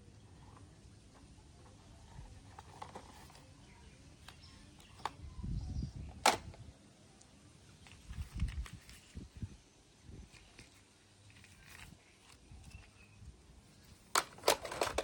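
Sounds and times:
plastic toy clicks: 0:14.1 - 0:15.0.

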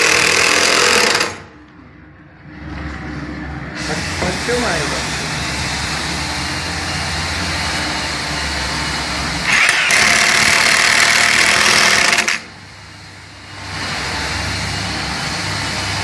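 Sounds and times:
impact driver driving screw: 0:00.0 - 0:01.5, 0:09.5 - 0:12.4
steady mechanical hum: 0:00.0 - 0:16.0.

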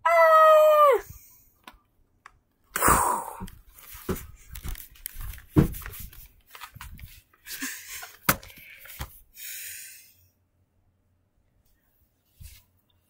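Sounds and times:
handling rustling and thumps: 0:03.5 - 0:07.3.

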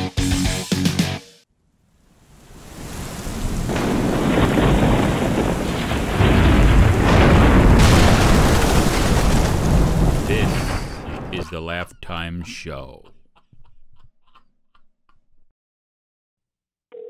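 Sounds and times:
rain hissing: 0:01.8 - 0:11.5
rolling thunder: 0:02.6 - 0:11.4.

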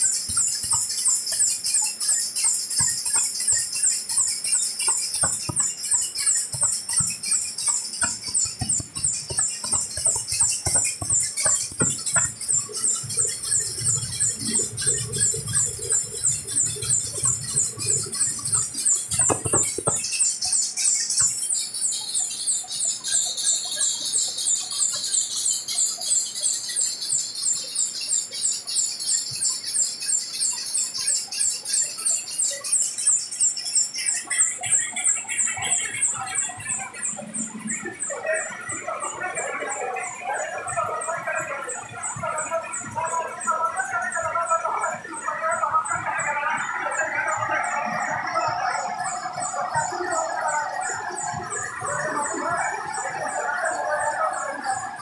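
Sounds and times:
printing press rhythmic squeaking hiss: 0:00.0 - 0:55.0
knocks: 0:04.6 - 0:20.2.

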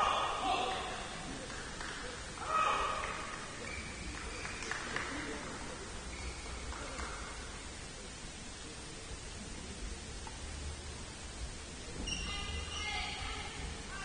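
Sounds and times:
loud echoing shout: 0:00.0 - 0:01.1, 0:02.4 - 0:03.3
hall background hiss: 0:00.3 - 0:14.0.

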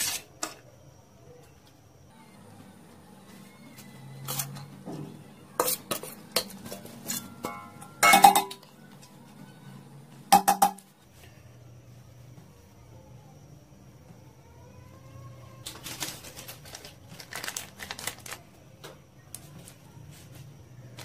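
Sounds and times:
metal spoon clinking on pot: 0:05.6 - 0:08.6.

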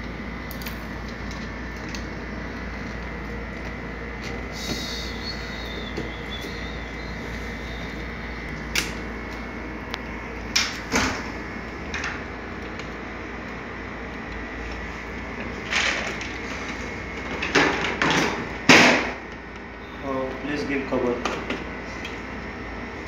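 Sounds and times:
steady background hum: 0:00.0 - 0:23.0.

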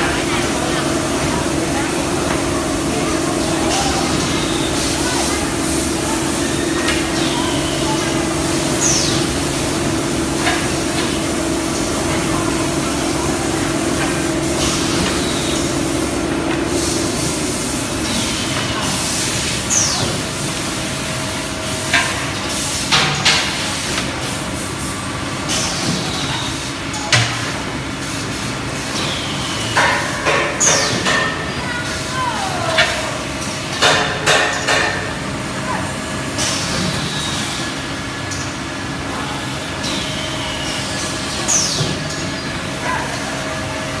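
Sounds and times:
machine hum and hiss: 0:00.0 - 0:44.0.

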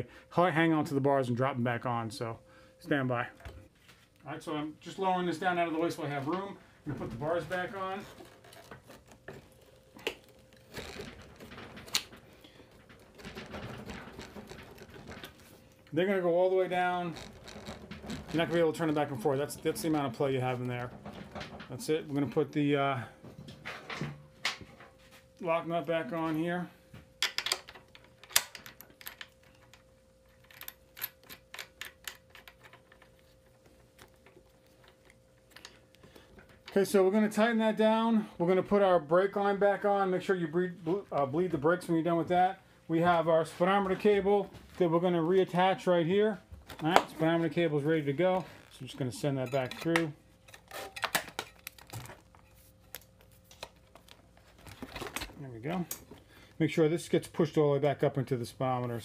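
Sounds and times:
handling noise: 0:04.8 - 0:37.0.

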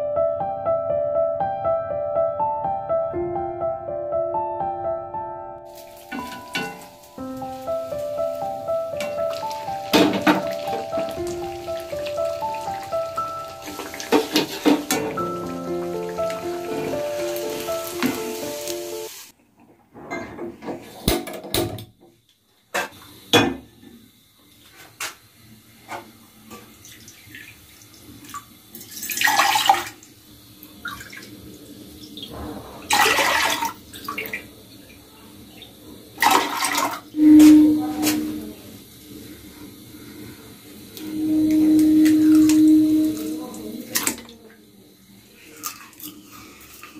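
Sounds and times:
background music: 0:00.0 - 0:19.3
water pouring into a saucepan: 0:05.7 - 0:19.3, 0:26.7 - 0:37.2, 0:45.3 - 0:46.9
utensils clinking: 0:05.8 - 0:07.2, 0:09.0 - 0:18.4.

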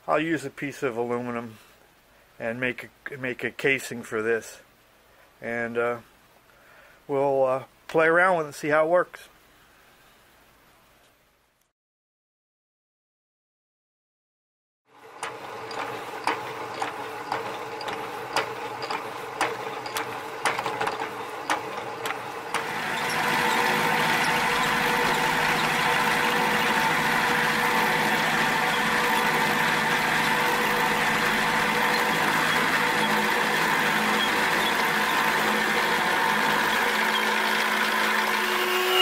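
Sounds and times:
milling machine running: 0:14.9 - 0:39.0
end mill cutting metal: 0:15.0 - 0:39.0.

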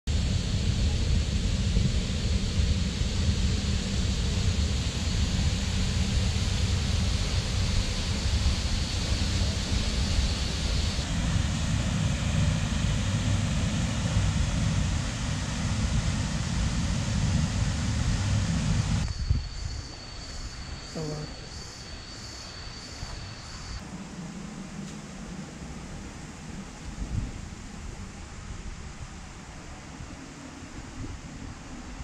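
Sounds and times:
thin high tone: 0:04.6 - 0:23.8.

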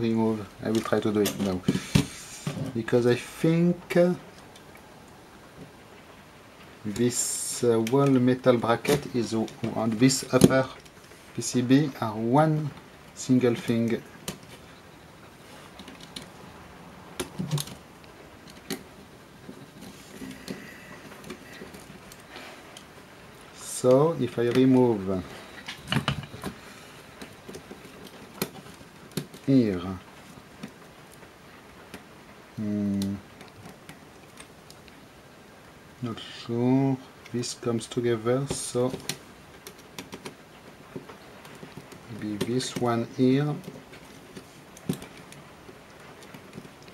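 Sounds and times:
faint plastic clicks and ticks: 0:17.2 - 0:35.6, 0:37.0 - 0:46.9.

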